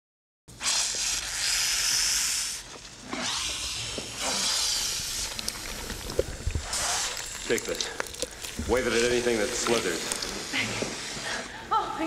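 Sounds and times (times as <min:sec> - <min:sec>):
loud hissing bursts: 0:00.6 - 0:11.5
wet squelching and slithering: 0:00.6 - 0:11.5.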